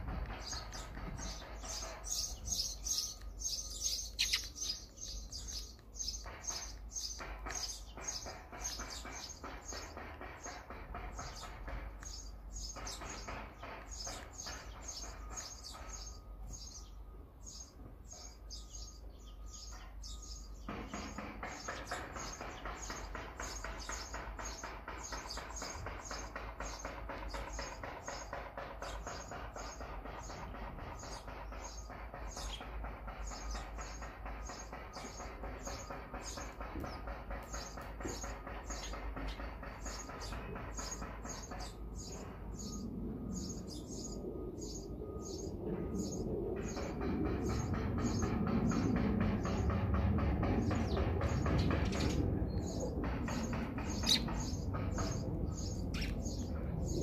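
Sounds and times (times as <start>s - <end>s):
sparrows chirping: 0.0s - 57.0s.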